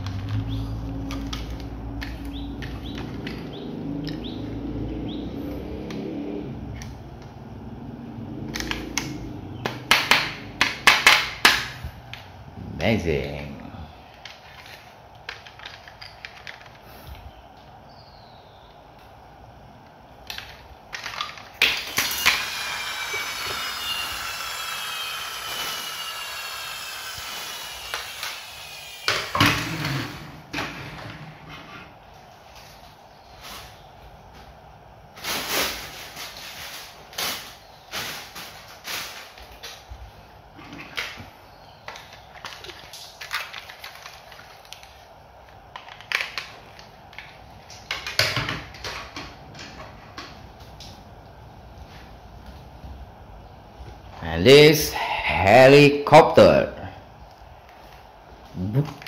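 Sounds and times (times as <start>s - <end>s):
plastic toys clicking and clattering: 0.0s - 4.3s, 14.1s - 17.2s, 20.2s - 22.4s, 41.8s - 50.4s.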